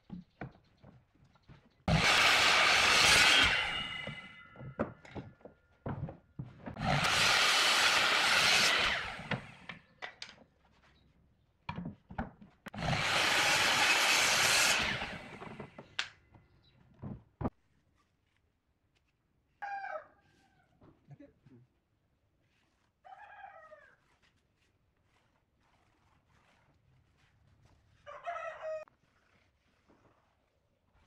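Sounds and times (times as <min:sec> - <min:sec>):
wooden knocks and taps: 0:00.0 - 0:01.7, 0:04.6 - 0:06.8, 0:11.6 - 0:12.8
tool scraping wood: 0:01.9 - 0:09.8, 0:12.7 - 0:16.0, 0:24.0 - 0:28.0.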